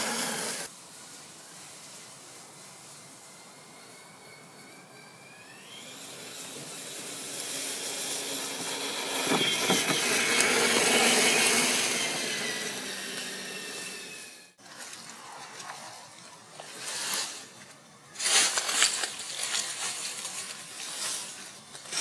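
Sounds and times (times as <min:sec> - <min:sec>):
rc truck motor whining: 0:00.0 - 0:00.7, 0:02.2 - 0:14.6
tyres crackling through leaves: 0:00.0 - 0:22.0.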